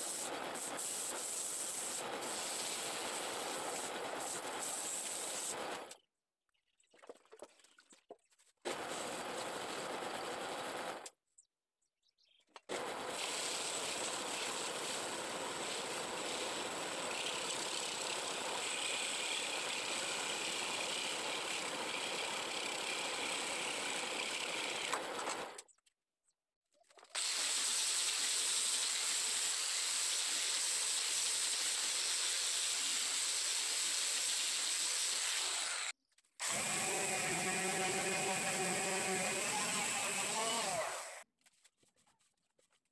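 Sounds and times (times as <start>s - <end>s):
wood lathe whirring: 12.7s - 25.6s, 35.4s - 41.2s
motor with pitched hum: 35.8s - 41.2s.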